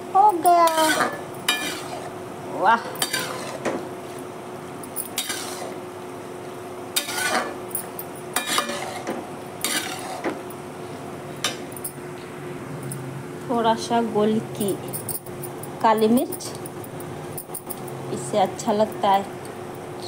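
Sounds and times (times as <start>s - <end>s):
ladle scraping metal pan: 0.7s - 2.0s, 7.0s - 7.6s, 8.4s - 10.3s.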